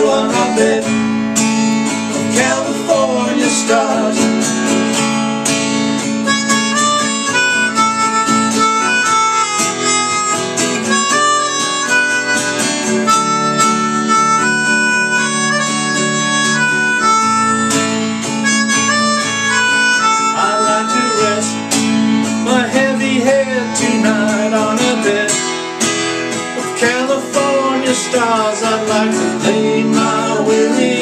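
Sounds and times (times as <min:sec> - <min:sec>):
person singing: 0:00.0 - 0:01.1, 0:02.2 - 0:04.6, 0:20.3 - 0:21.6, 0:22.4 - 0:25.5, 0:26.6 - 0:31.0
strummed acoustic guitar: 0:00.0 - 0:31.0
melodica playing long held notes: 0:06.0 - 0:22.2.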